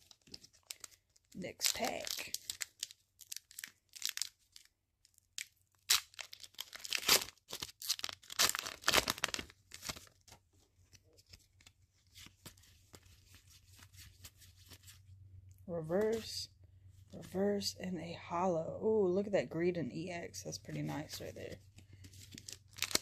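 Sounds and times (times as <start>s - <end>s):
cards rustling: 0.0s - 4.7s, 6.0s - 15.0s, 20.7s - 23.0s
foil wrapper being torn open: 0.0s - 10.2s, 22.3s - 23.0s.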